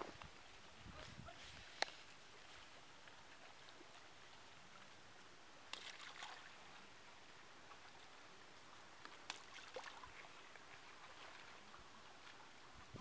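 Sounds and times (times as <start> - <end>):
fish feed pattering on water: 5.7 - 6.5.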